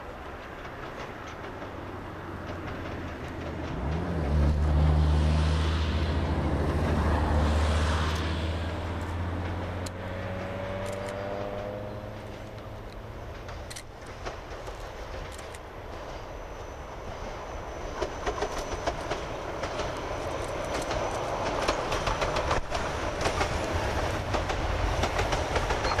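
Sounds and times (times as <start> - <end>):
steam locomotive drone: 0.0 - 26.0.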